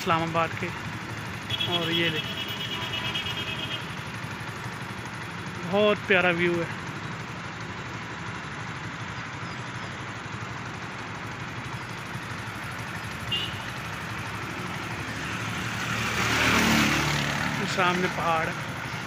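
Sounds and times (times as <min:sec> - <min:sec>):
motorcycle engine running: 0:00.0 - 0:19.0
wind and road noise: 0:06.7 - 0:19.0.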